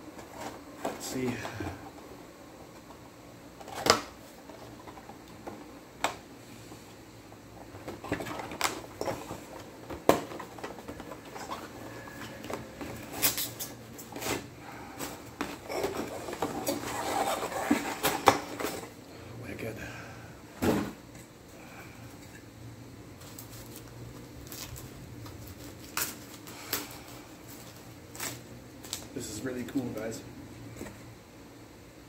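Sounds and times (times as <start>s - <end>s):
cardboard and paper rustling: 7.8s - 18.9s, 23.2s - 29.2s.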